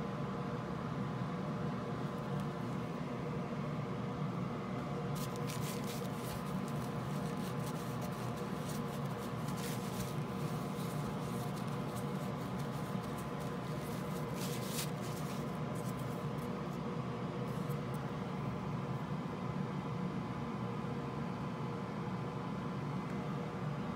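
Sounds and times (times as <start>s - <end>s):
steady background hum: 0.0s - 23.9s
tissue scrubbing circuit board: 5.2s - 16.2s.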